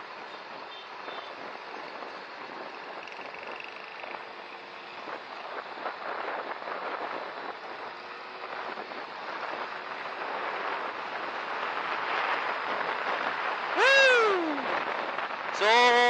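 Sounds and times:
scooter road noise: 0:00.0 - 0:16.0
wind rushing over microphone: 0:05.0 - 0:16.0.

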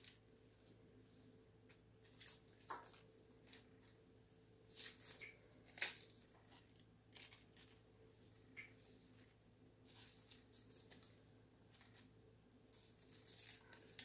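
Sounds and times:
faint low hum: 0:00.0 - 0:14.0
lettuce leaves crackling: 0:02.0 - 0:04.0, 0:04.7 - 0:08.8, 0:09.8 - 0:12.1, 0:12.7 - 0:14.0
plastic bag rustling: 0:04.7 - 0:14.0.

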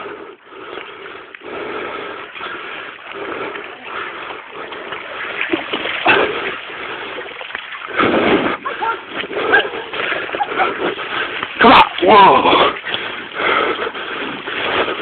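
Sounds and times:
wheels and paws rolling through mud: 0:00.0 - 0:15.0.

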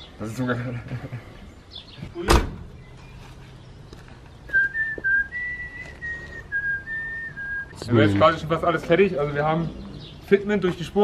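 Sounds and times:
person whistling a tune: 0:04.5 - 0:07.8.

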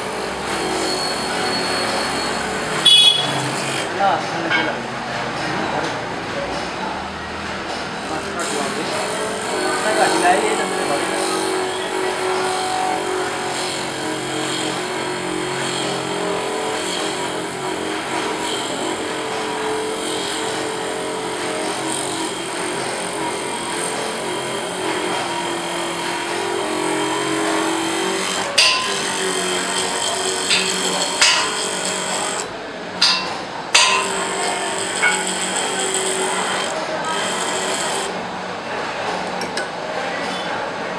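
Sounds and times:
grinding wheel grinding steel: 0:00.0 - 0:03.9, 0:08.4 - 0:38.2.

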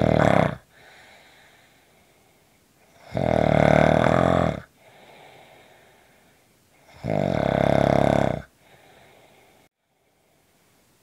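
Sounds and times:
person snoring: 0:00.0 - 0:01.7, 0:02.9 - 0:06.0, 0:06.8 - 0:09.7
soft breathing: 0:00.6 - 0:03.0, 0:04.7 - 0:06.9, 0:08.5 - 0:10.8.

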